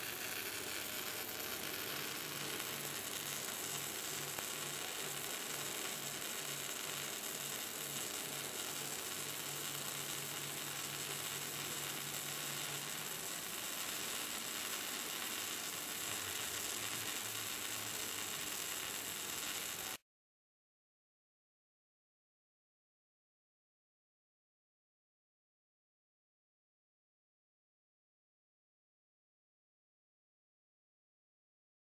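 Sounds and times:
arc welding hiss: 0.0s - 20.0s.

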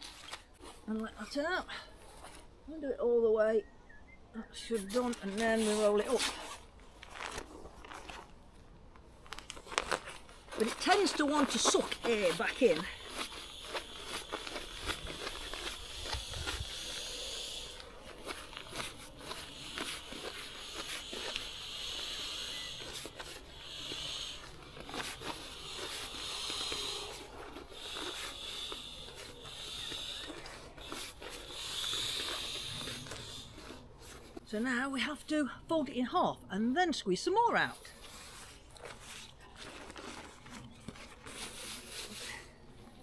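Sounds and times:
air hissing out of valve: 15.7s - 17.8s, 30.9s - 33.5s.

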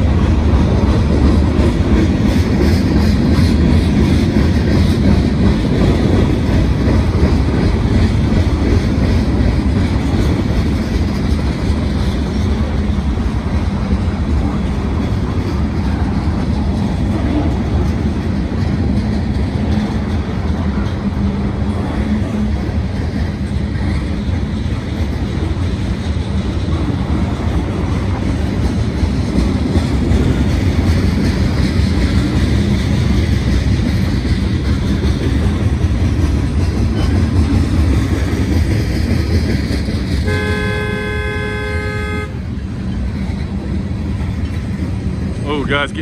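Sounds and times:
freight train rolling past: 0.0s - 46.0s
car horn blast: 40.2s - 42.4s.

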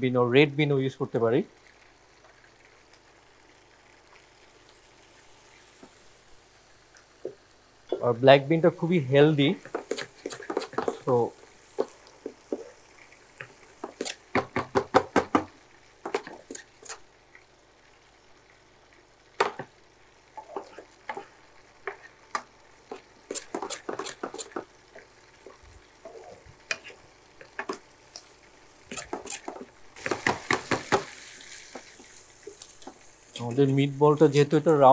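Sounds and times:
wooden spatula scraping a pan: 9.6s - 14.4s, 20.4s - 33.0s.

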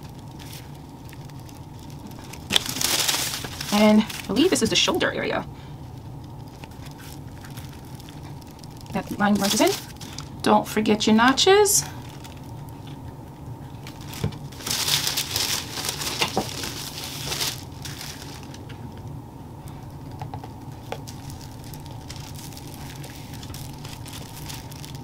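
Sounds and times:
paper rustling and crinkling: 0.0s - 4.9s, 5.9s - 10.4s, 13.7s - 18.8s, 20.8s - 25.0s
steady low hum: 0.0s - 25.0s.

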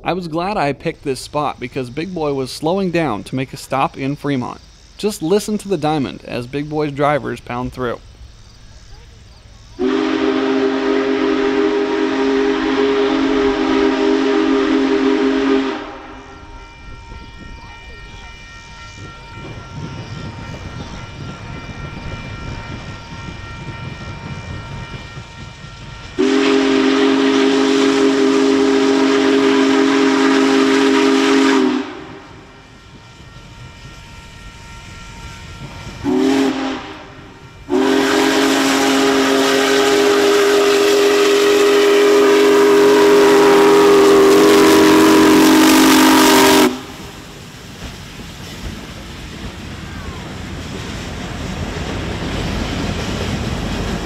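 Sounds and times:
steam locomotive rumble and hiss: 0.0s - 54.0s
steam whistle chord blasts: 9.8s - 47.3s.

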